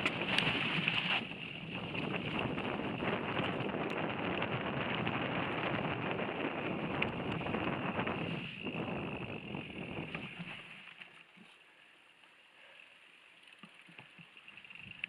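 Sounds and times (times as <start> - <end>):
wind rush on microphone: 0.0 - 10.7
bike clicks and rattles: 0.0 - 11.6, 12.7 - 15.0.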